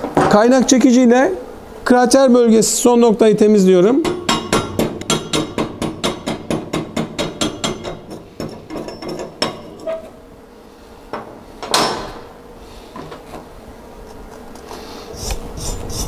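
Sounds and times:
chipping hammer striking steel: 4.0 - 9.6.

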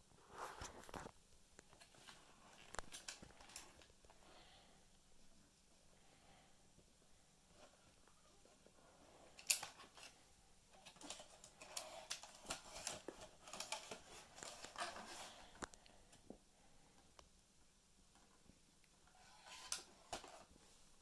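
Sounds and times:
plastic parts clicking and rustling: 0.9 - 3.9, 9.3 - 15.8.

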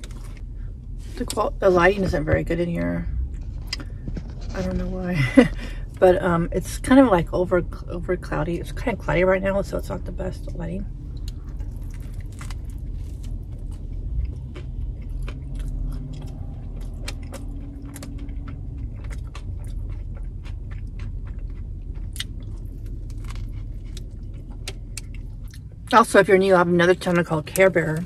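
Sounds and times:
person chewing sandwich: 0.0 - 1.0, 11.1 - 25.8
steady low rumble: 0.0 - 28.0.

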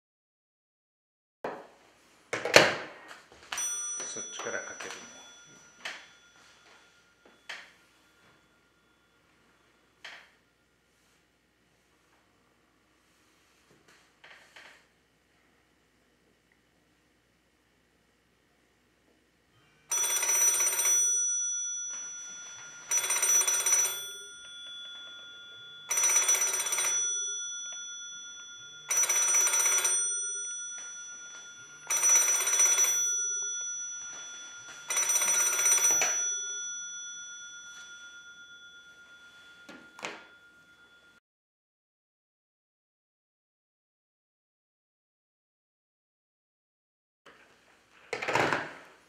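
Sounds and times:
telephone bell ringing: 3.3 - 11.2, 19.5 - 41.2.

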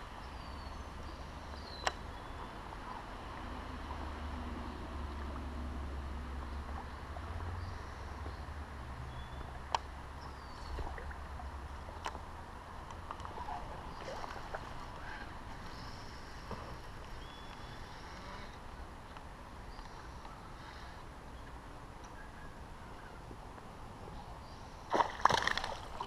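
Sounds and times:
creek water flowing: 0.0 - 17.8, 24.8 - 26.0.

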